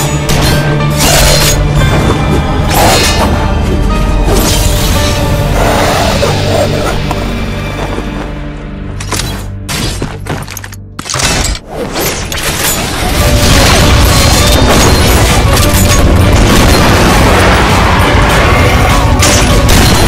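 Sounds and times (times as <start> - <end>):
trailer music with booming hits: 0.0 - 20.0.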